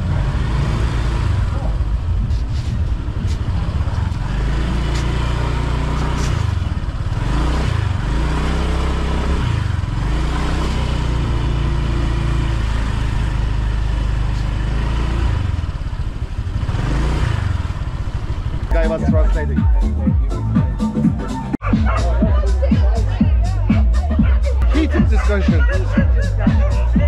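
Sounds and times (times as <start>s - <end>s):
wind noise: 1.8s - 4.3s
small motorbike engine revving: 3.8s - 18.7s.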